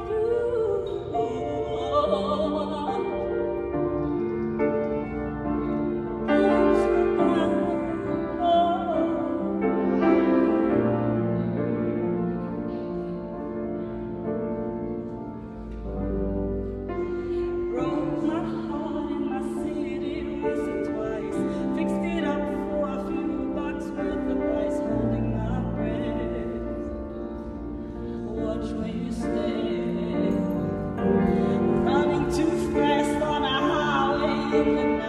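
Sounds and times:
woman singing with vibrato: 0.0 - 3.7, 6.2 - 10.5, 17.5 - 27.2, 28.1 - 35.0
grand piano accompaniment: 0.0 - 35.0.

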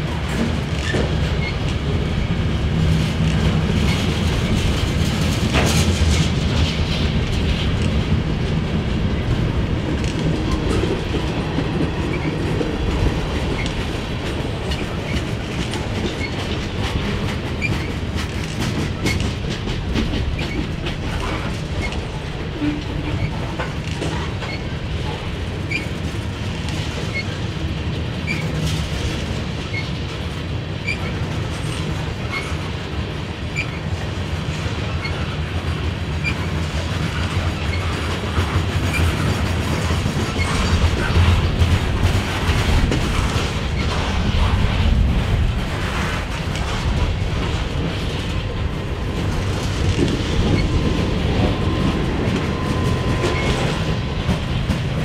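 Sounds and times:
freight train rumbling: 0.0 - 55.0
wheels clicking over rail joints: 0.0 - 55.0
high wheel squeaks: 33.6 - 33.9, 49.2 - 54.3.

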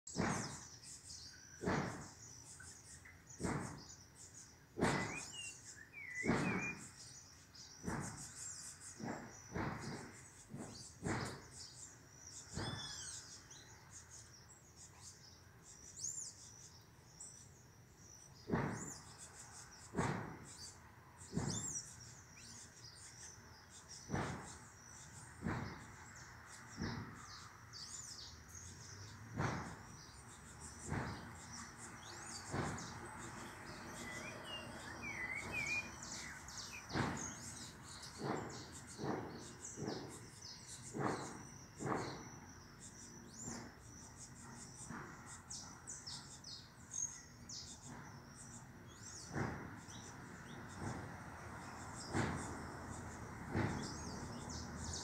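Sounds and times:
birds chirping: 0.0 - 55.0
loud sharp sounds: 4.8 - 7.1, 24.0 - 45.4.

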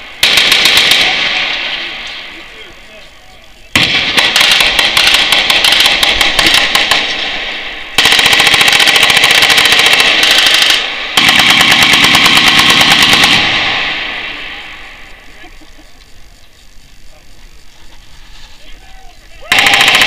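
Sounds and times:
machine-gun fire: 0.0 - 2.2, 3.7 - 15.0, 19.5 - 20.0.

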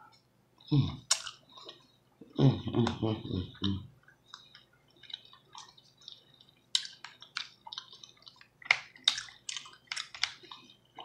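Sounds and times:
wet chewing: 2.8 - 11.0.

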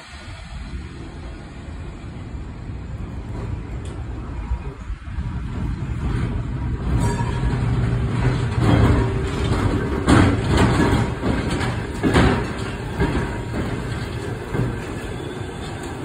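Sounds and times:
rail car rumbling past: 0.0 - 16.0
steel wheels clunking on track: 5.3 - 16.0.

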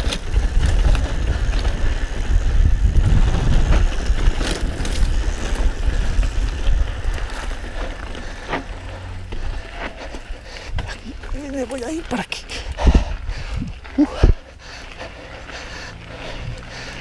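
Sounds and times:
bike clacking and rattling: 0.0 - 11.8
bike tyres rolling over dirt: 0.0 - 17.0
wind rumbling on microphone: 0.0 - 17.0.

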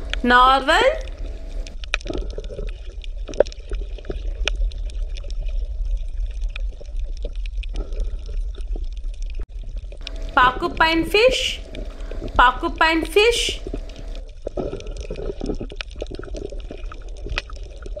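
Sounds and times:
water rumbling and gurgling: 0.0 - 18.0.

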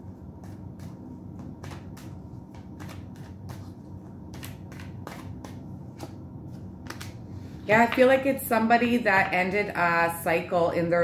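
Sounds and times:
cards being shuffled: 0.4 - 7.2.

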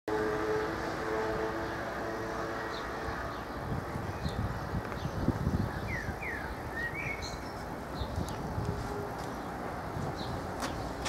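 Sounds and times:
bird chirps: 5.0 - 7.6.

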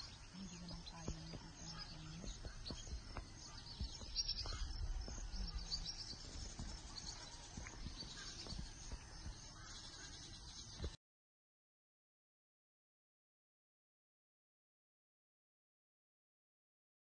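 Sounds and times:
insect calls: 0.0 - 10.9
bird chirps: 0.0 - 11.0.

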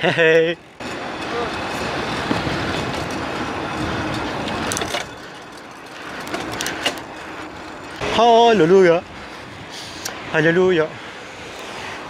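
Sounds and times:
bike rumbling over paving stones: 0.1 - 9.0.

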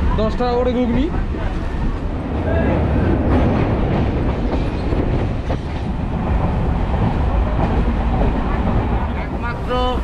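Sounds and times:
train rumble: 0.0 - 10.0.

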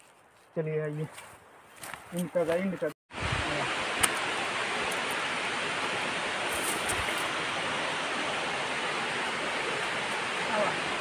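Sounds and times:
waterfall rushing: 3.1 - 11.0.

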